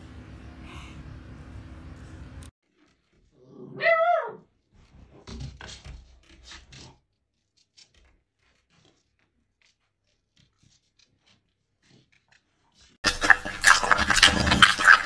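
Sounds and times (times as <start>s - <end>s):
puppy claws scratching glass door: 4.7s - 15.0s.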